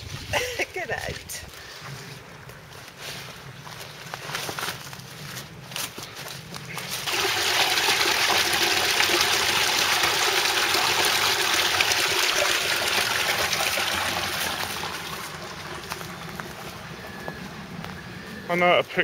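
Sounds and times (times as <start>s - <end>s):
water gushing from a pipe: 6.9s - 17.3s.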